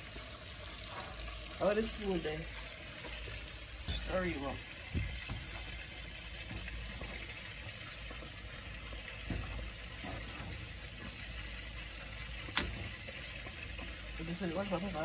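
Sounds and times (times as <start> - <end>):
pot bubbling: 0.0 - 15.0
wooden spoon stirring: 8.5 - 11.6.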